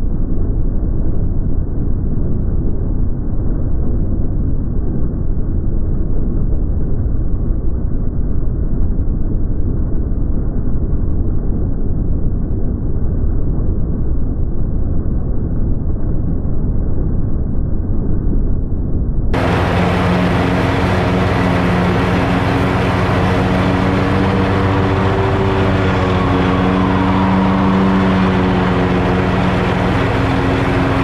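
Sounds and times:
muffled lawn mower cutting grass: 19.4 - 31.0.

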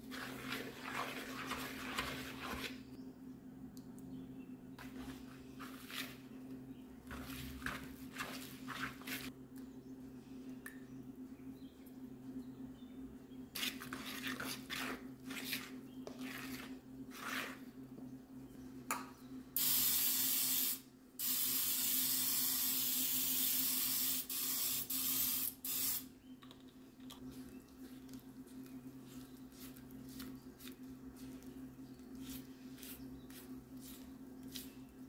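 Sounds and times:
utensil scraping through batter: 0.0 - 2.9, 13.6 - 17.8.

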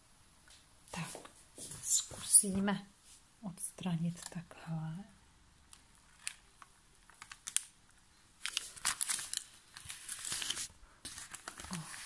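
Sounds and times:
baking paper crinkling: 5.8 - 12.0.

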